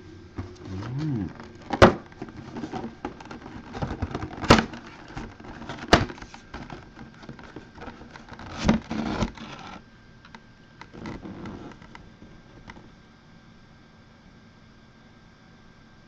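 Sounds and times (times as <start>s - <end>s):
lid scraping and sliding rustle: 0.0s - 9.8s, 10.9s - 12.8s
cardboard box knocks and cracks: 1.7s - 4.9s, 5.6s - 7.4s.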